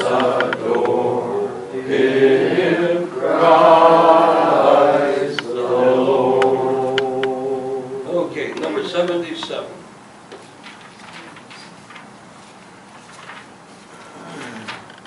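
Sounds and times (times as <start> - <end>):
congregation singing a hymn: 0.0 - 8.4.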